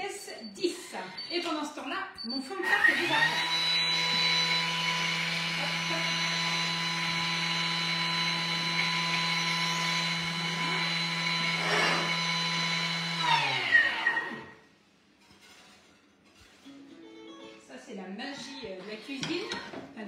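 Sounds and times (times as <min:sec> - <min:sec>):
blender blade grinding sugar: 0:02.7 - 0:14.6.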